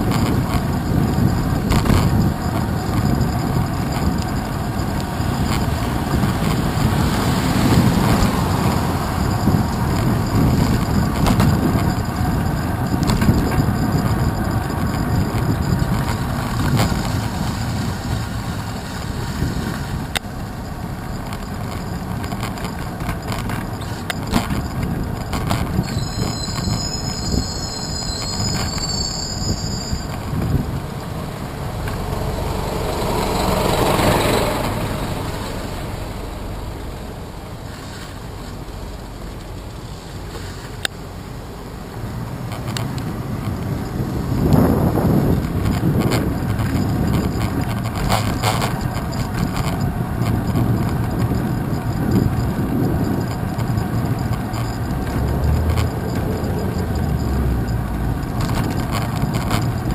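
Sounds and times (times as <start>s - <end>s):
bike jolting over bumps: 0.0s - 27.4s, 42.5s - 59.9s
tyres rumbling: 0.0s - 59.9s
wind: 0.0s - 59.9s
high brake squeal: 23.5s - 24.8s, 25.6s - 38.6s.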